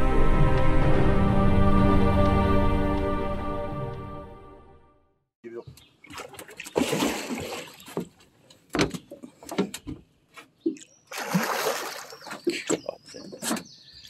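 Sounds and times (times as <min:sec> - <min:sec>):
fish splashing in water: 0:06.0 - 0:08.1, 0:10.8 - 0:12.8.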